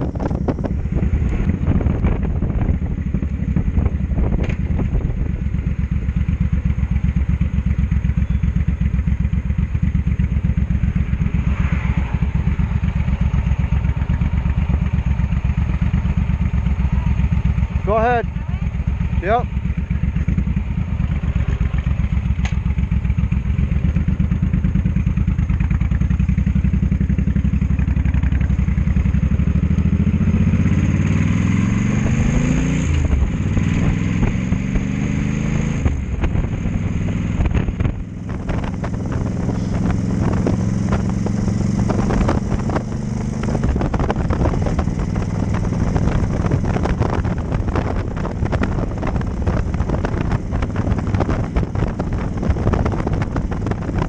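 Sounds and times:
wind buffeting microphone: 0.0 - 5.9, 10.2 - 54.0
motorcycle engine: 0.0 - 54.0.

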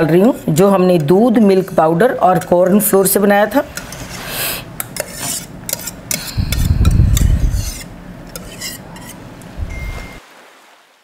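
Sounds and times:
wire whisk stirring: 4.8 - 9.2
paste scraped from saucepan: 4.9 - 9.2.

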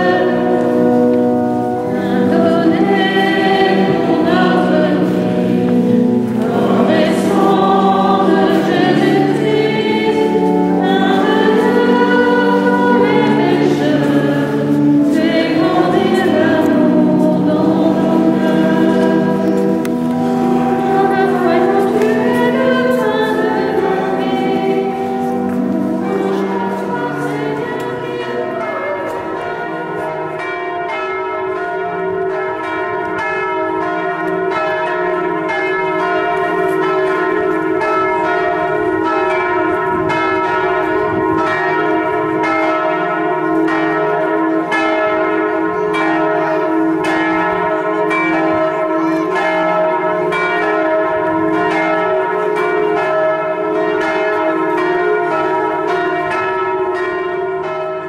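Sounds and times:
congregation singing: 0.0 - 31.0
church bells pealing: 0.0 - 58.0.

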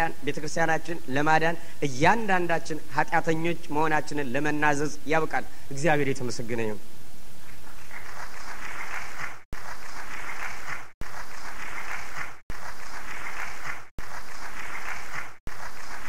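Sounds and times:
looped applause-like crackling: 7.9 - 16.0.

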